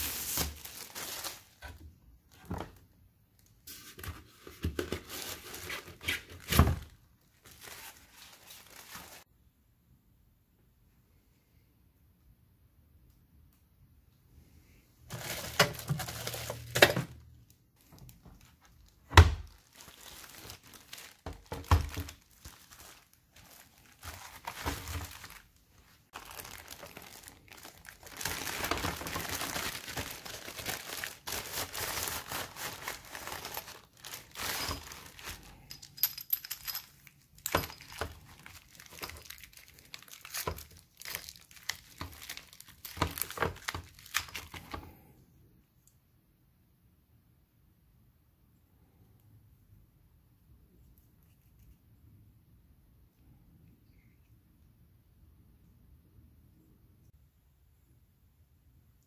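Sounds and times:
plastic bags crinkling: 0.0s - 2.8s, 4.7s - 9.2s, 15.1s - 17.2s, 17.8s - 44.8s.

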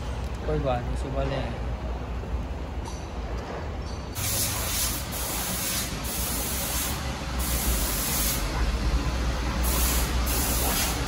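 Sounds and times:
spraying hiss bursts: 4.2s - 8.6s, 9.5s - 11.0s.

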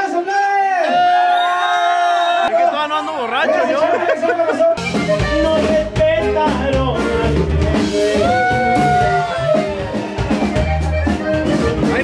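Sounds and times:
live band playing: 3.0s - 12.0s
accordion: 3.2s - 8.2s, 9.3s - 12.0s.

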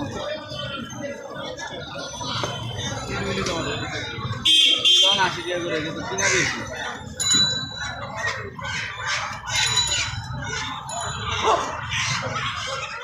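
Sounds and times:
chickens clucking and squawking: 5.5s - 13.0s.

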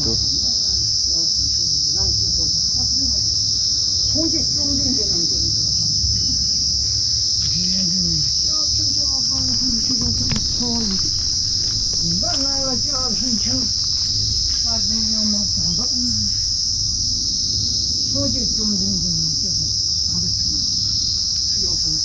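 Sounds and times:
insects droning: 0.0s - 22.0s
low voices talking: 7.5s - 16.4s.

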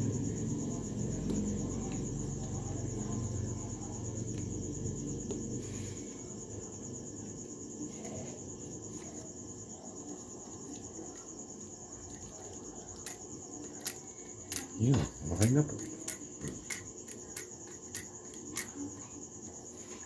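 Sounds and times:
high-pitched insect trill: 0.0s - 20.0s.

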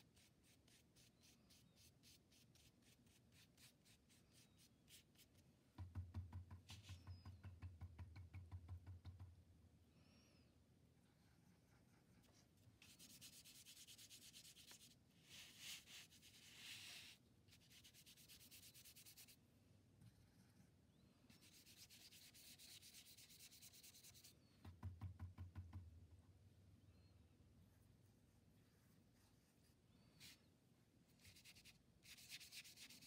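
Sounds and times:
paintbrush scrubbing on paper: 0.0s - 5.4s, 11.6s - 19.4s, 21.3s - 24.4s, 31.2s - 33.0s.

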